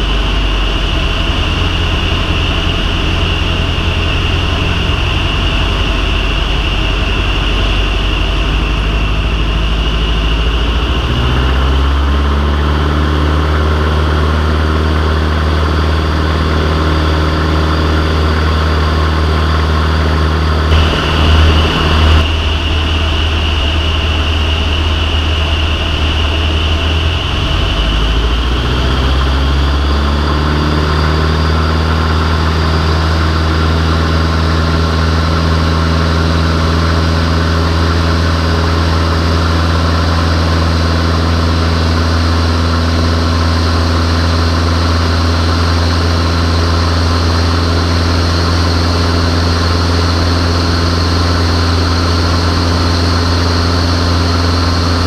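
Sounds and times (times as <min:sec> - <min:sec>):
propeller aircraft engine droning: 0:00.0 - 0:55.0.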